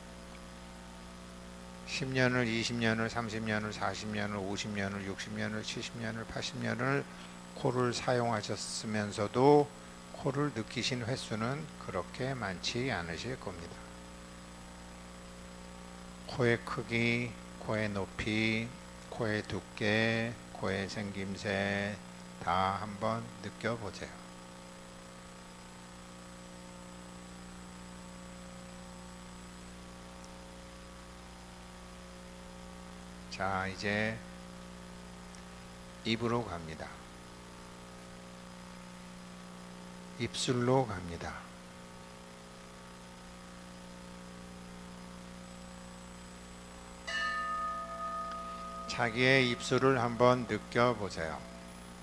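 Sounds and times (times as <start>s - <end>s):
electrical mains hum: 0.0s - 52.0s
faint microphone hiss: 0.0s - 52.0s
metal bell struck with mallet: 47.1s - 51.8s.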